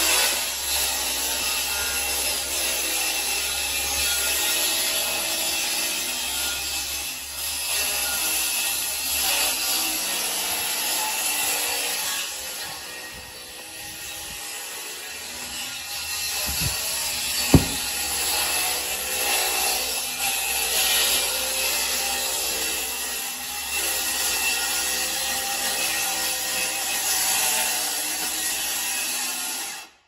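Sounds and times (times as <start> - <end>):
circular saw cutting: 0.1 - 8.2
sharp knock: 17.5 - 17.9.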